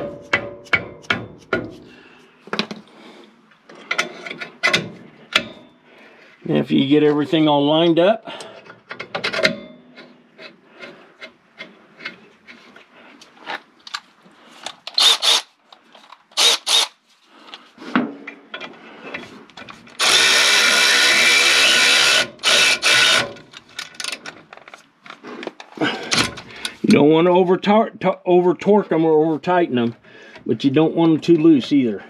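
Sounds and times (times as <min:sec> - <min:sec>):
tools and parts clinking: 0:08.6 - 0:12.6, 0:23.2 - 0:26.8
power tool running: 0:15.0 - 0:15.5, 0:16.4 - 0:16.9, 0:20.0 - 0:23.4.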